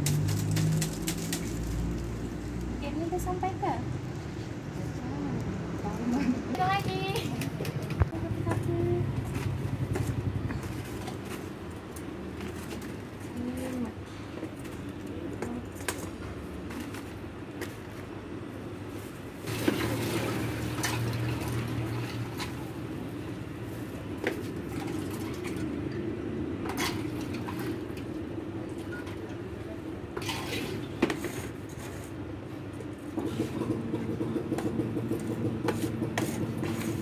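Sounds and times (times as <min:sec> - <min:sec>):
drink pouring and splashing: 0:19.4 - 0:22.7.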